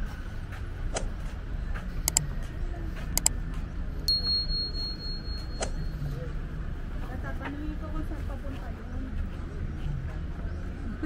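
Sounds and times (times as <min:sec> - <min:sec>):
sharp clicks: 0:02.0 - 0:02.3, 0:03.1 - 0:03.4
high bell-like ringing tone: 0:04.1 - 0:06.3.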